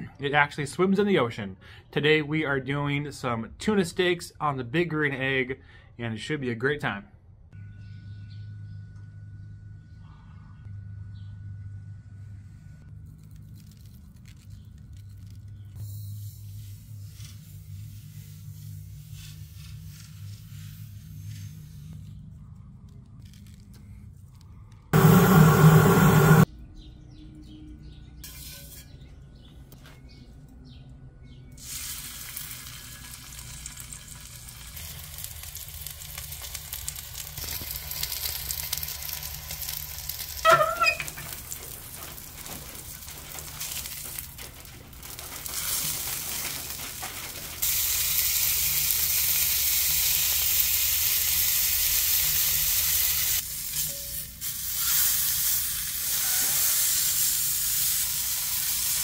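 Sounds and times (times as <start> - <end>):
loud burst: 25.0 - 26.5
short pitched sound: 25.0 - 26.5
fish sizzling on a griddle: 31.6 - 44.3, 45.0 - 59.0.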